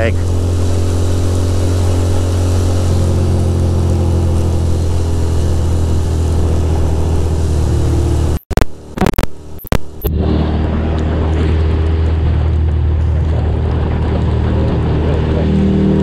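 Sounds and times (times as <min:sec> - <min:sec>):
motorcycle engine running: 0:00.0 - 0:16.0
wind rushing over microphone: 0:09.8 - 0:16.0.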